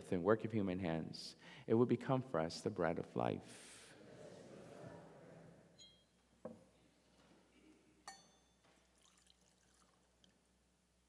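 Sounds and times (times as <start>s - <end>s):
glass clinks: 5.8s - 6.2s, 8.0s - 9.2s
liquid pouring into chalice: 8.8s - 10.4s.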